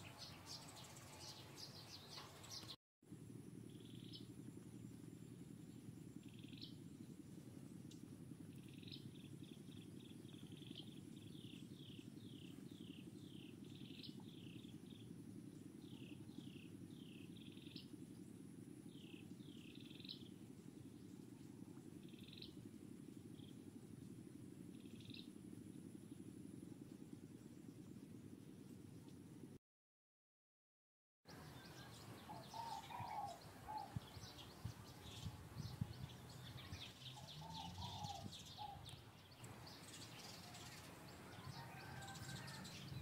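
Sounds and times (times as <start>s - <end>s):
bird chirping: 0.0s - 2.7s, 18.9s - 20.4s, 31.3s - 43.0s
low rumbling hiss: 0.0s - 29.6s, 31.3s - 43.0s.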